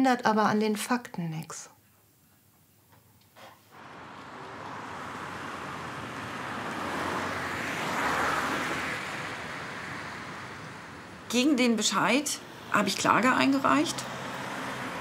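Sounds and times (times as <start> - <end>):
car passing: 3.7 - 15.0.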